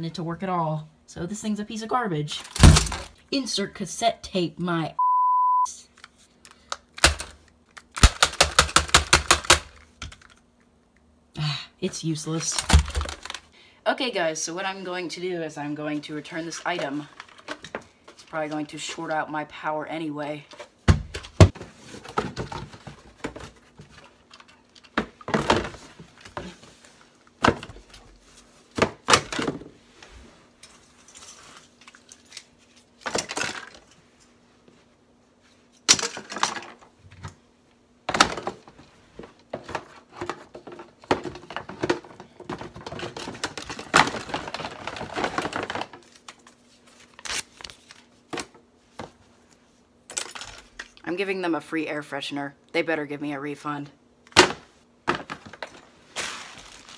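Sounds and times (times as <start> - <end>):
rustling: 55.8 - 56.9.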